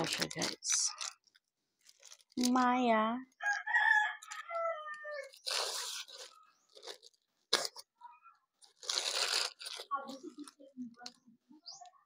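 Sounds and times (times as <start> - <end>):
plastic bag rustling: 0.0 - 3.0, 5.2 - 7.8, 8.6 - 11.2
rooster crowing: 3.4 - 5.4.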